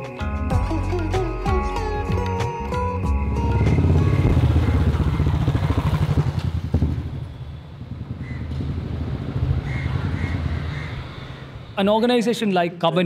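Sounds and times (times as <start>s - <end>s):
motorcycle passing by: 3.2s - 11.8s.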